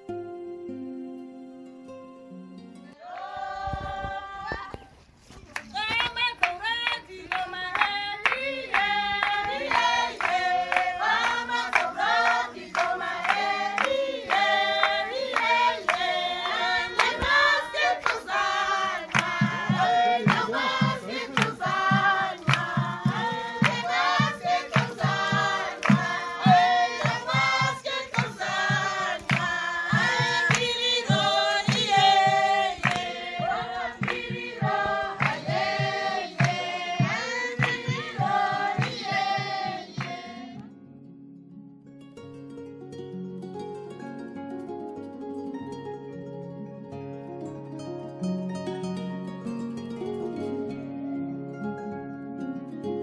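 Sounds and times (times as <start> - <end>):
women singing in chorus: 3.0 - 4.9, 6.4 - 40.6
hand clapping: 5.5 - 40.3.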